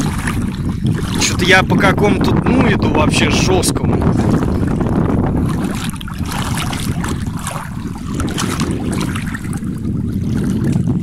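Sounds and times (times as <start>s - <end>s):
water splashing from swimming: 0.0s - 1.6s, 4.0s - 11.0s
wind on microphone: 0.0s - 11.0s.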